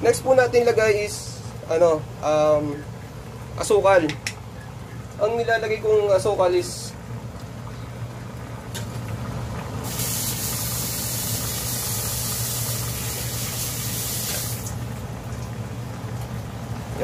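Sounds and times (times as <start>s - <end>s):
low steady hum: 0.0s - 17.0s
sauce bubbling in a pot: 2.7s - 17.0s.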